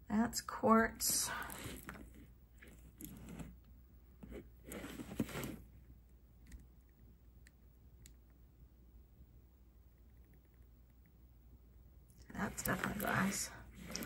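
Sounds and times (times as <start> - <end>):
necklace rustling: 1.0 - 3.6, 4.2 - 5.7, 12.2 - 14.0.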